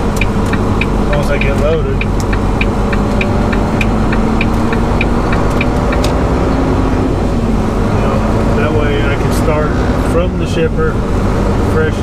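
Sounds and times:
turn signal ticking: 0:00.0 - 0:06.9
diesel engine running: 0:00.0 - 0:12.0.

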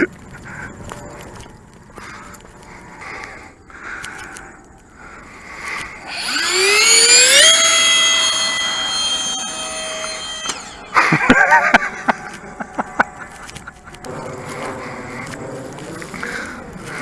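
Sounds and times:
model plane motor whine: 0:05.8 - 0:15.4.

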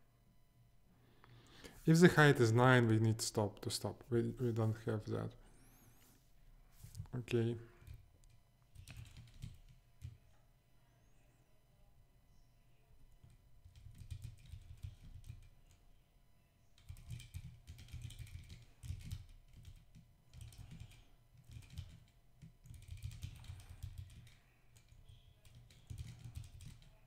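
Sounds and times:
computer keyboard typing: 0:07.8 - 0:10.3, 0:13.1 - 0:15.8, 0:16.8 - 0:27.0.

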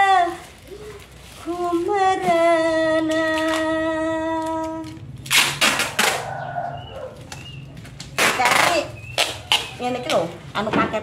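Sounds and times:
packing tape ripping off roll: 0:03.1 - 0:06.3, 0:07.2 - 0:10.2.

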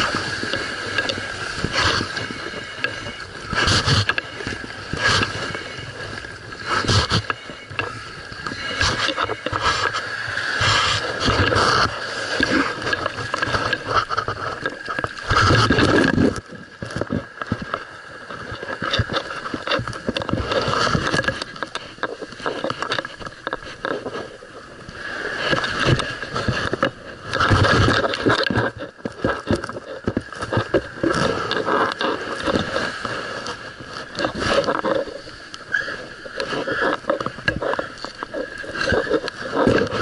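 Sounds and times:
surging wash of noise: 0:00.0 - 0:24.3
camera scraping against diving gear: 0:00.0 - 0:40.0.

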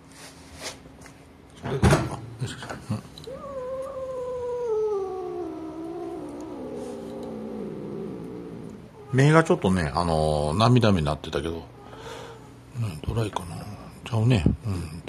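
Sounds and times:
cat yowling: 0:03.2 - 0:09.4.

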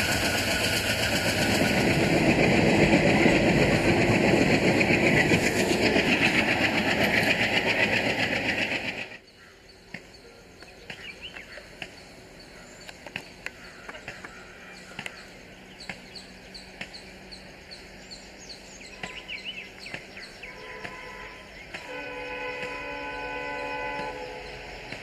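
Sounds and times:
loud train running: 0:00.0 - 0:25.0
birds chirping: 0:09.2 - 0:25.0.

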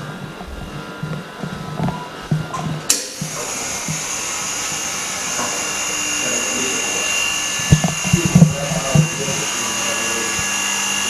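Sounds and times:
machine hissing and whining: 0:00.0 - 0:11.0.

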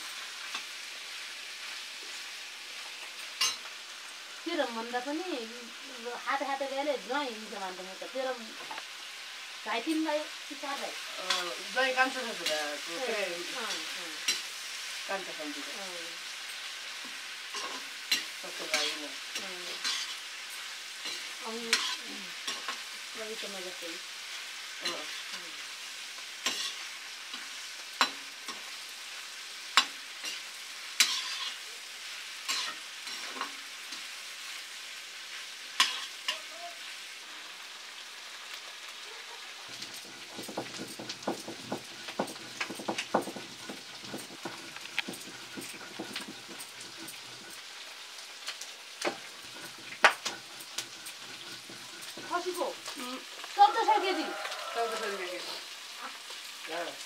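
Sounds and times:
meat sizzling in a wok: 0:00.0 - 0:57.0
metal ladle scraping a pan: 0:19.7 - 0:22.8, 0:26.4 - 0:26.9, 0:30.2 - 0:31.6, 0:32.5 - 0:33.5, 0:49.1 - 0:52.4.

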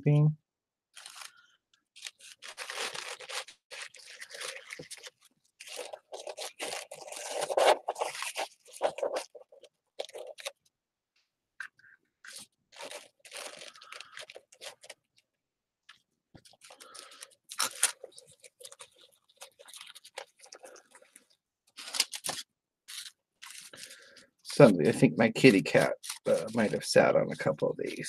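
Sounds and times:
paper rustling and crunching: 0:02.0 - 0:10.5, 0:12.3 - 0:15.0, 0:21.8 - 0:28.0.

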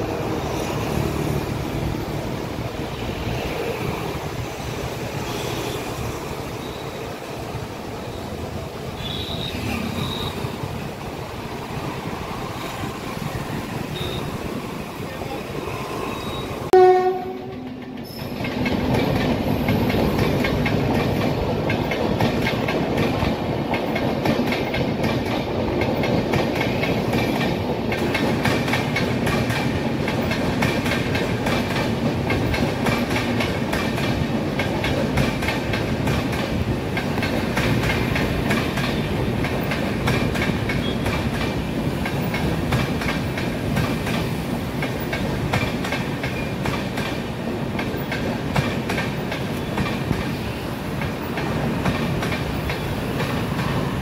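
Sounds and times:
train coaches rumbling past: 0:00.0 - 0:54.0
locomotive horn blast: 0:16.7 - 0:17.8
wheels clacking over rail joints: 0:17.3 - 0:54.0.

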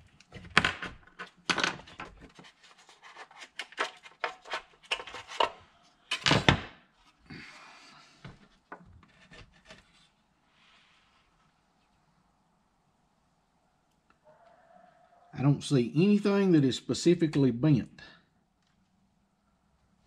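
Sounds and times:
plastic scraping: 0:00.0 - 0:05.6, 0:08.7 - 0:10.1
plastic housing clicking and clacking: 0:03.2 - 0:06.4.

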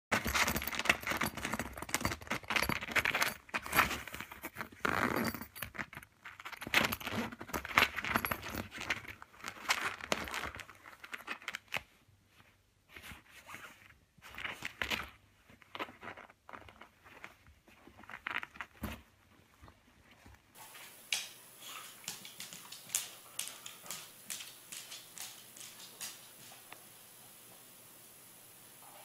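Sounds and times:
zipper pulls clinking: 0:00.2 - 0:09.1.

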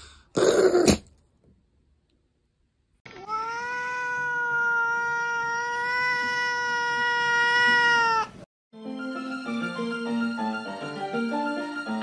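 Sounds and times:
cat yowling: 0:03.1 - 0:08.4.

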